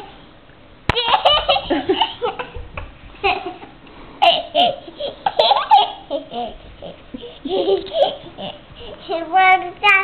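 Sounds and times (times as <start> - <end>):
toddler laughing: 0.9 - 8.7.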